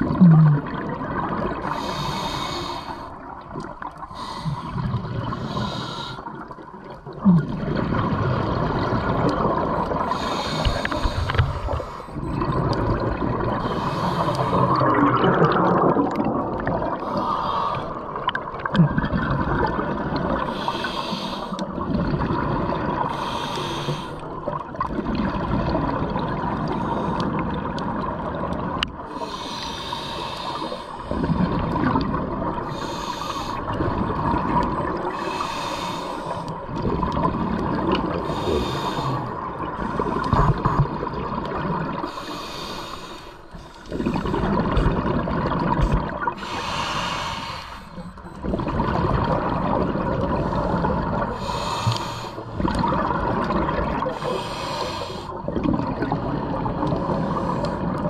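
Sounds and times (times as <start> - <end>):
exhaled bubbles bursting: 0.0 - 1.8, 6.3 - 17.3, 17.9 - 20.5, 21.6 - 23.1, 24.4 - 29.1, 31.0 - 32.7, 33.6 - 35.2, 36.6 - 38.4, 39.2 - 42.1, 43.9 - 46.5, 48.0 - 51.5, 52.5 - 54.3, 55.4 - 58.0
regulator hiss with breath: 1.7 - 3.1, 10.2 - 12.0, 20.5 - 21.6, 23.1 - 24.2, 29.2 - 31.0, 32.7 - 33.6, 35.1 - 36.4, 42.0 - 43.8, 46.4 - 48.0, 51.4 - 52.5, 54.1 - 55.4.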